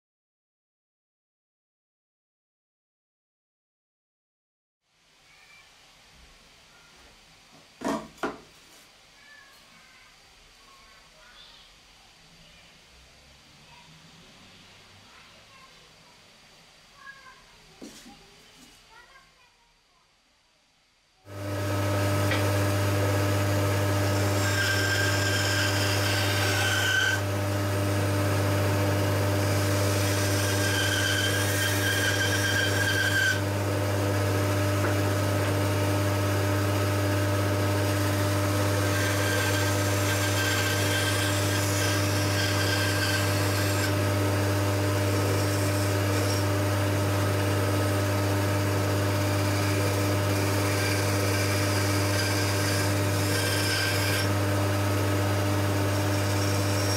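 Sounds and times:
band saw humming: 21.3s - 56.9s
saw blade whining into wood: 21.3s - 56.9s.

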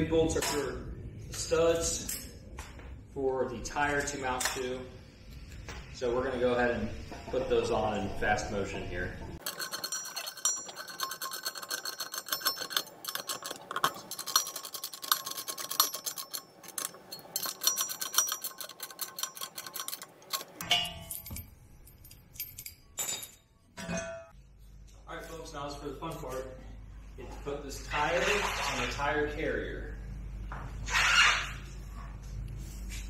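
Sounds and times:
socket ratchet clicking: 9.4s - 20.6s
metal clinks: 9.4s - 24.2s.

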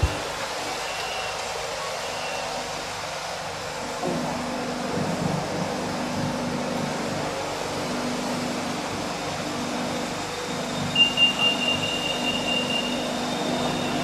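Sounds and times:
train car hum: 0.0s - 14.0s
rapidly pulsing door warning beep: 10.9s - 14.0s.

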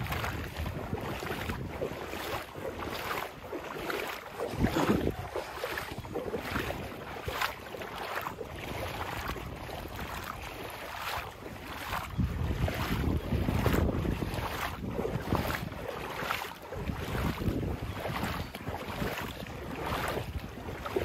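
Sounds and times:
wind buffeting microphone: 0.0s - 21.0s
footsteps walking: 0.1s - 12.1s.

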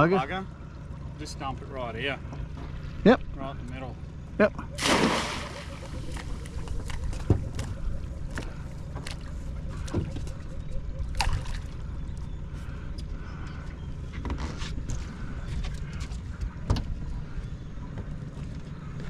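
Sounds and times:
boat engine idling: 0.0s - 19.0s.

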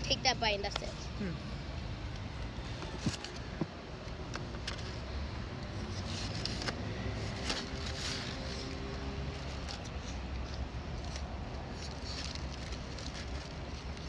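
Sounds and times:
paper bag rustling: 10.8s - 14.0s.

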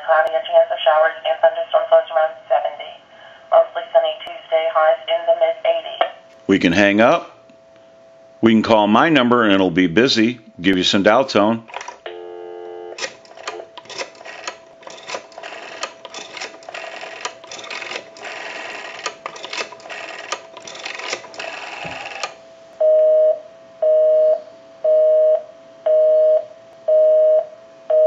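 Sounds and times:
rotary dial clicking: 13.0s - 22.4s
telephone busy signal beeping: 15.4s - 28.0s.

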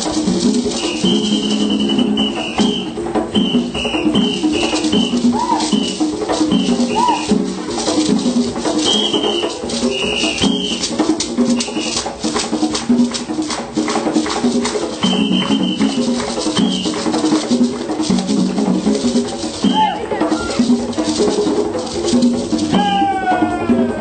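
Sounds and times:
lively rhythmic music: 0.0s - 24.0s.

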